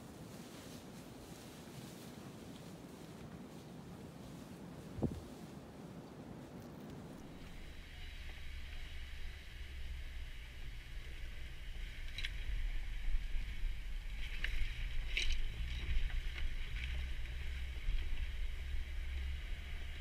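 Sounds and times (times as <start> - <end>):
car engine running at low crawl: 7.1 - 20.0
tyres rolling over wet rocks: 11.4 - 20.0.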